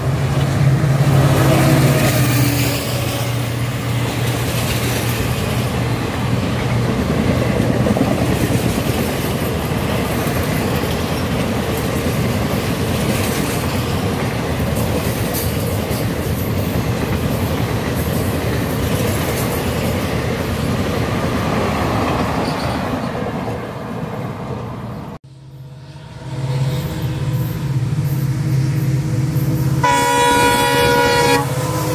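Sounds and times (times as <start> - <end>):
train rushing past: 0.0 - 31.9
wheels clattering on rails: 3.9 - 23.6.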